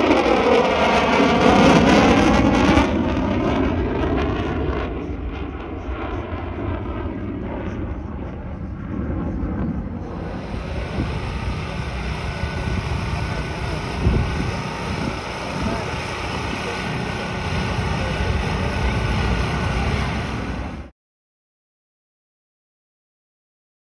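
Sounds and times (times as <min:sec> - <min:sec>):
jet exhaust rushing: 0:00.0 - 0:20.9
wind buffeting microphone: 0:07.5 - 0:20.8.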